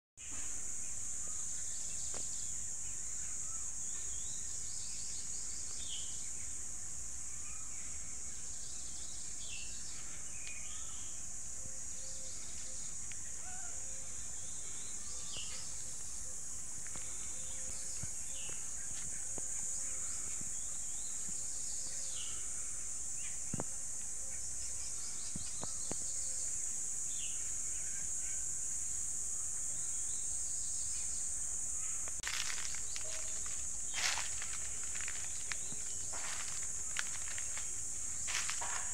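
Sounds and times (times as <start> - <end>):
high-pitched insect drone: 0.2 - 38.9
rustling and crackling: 32.1 - 38.9.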